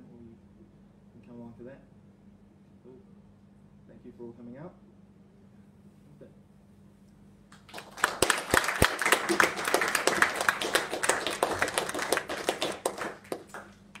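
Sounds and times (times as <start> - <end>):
audience applauding: 7.6 - 14.0.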